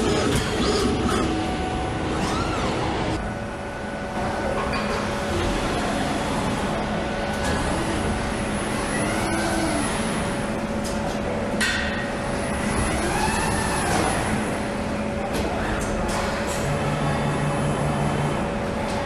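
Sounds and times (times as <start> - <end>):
coil winding machine whine: 0.0 - 11.4, 12.2 - 15.3
machinery hum: 0.0 - 19.0.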